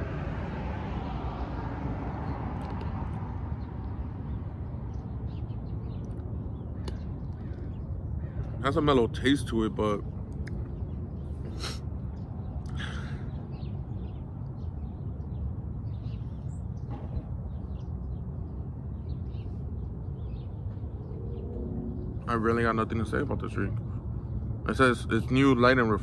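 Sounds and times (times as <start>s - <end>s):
bird calls: 3.6s - 9.7s, 10.4s - 26.0s
low rumble: 10.0s - 24.8s.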